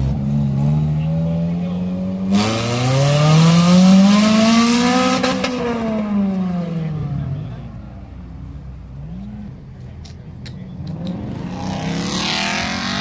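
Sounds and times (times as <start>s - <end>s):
car engine revving: 0.0s - 7.7s, 10.7s - 13.0s.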